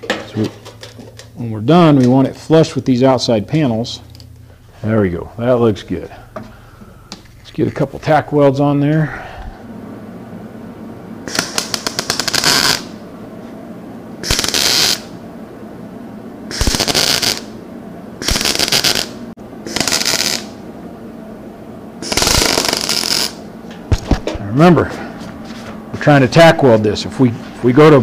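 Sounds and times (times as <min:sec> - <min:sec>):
welding arc crackling: 0:11.2 - 0:13.0, 0:14.2 - 0:15.1, 0:16.5 - 0:17.6, 0:18.2 - 0:20.6, 0:22.0 - 0:23.5.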